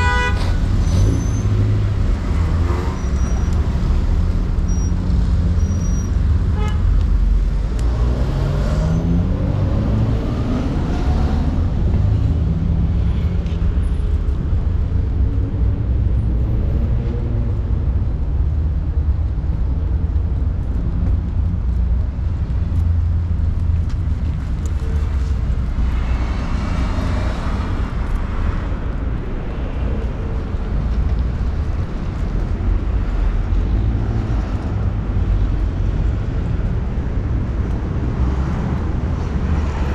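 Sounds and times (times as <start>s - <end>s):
passing cars rumble: 0.0s - 39.9s.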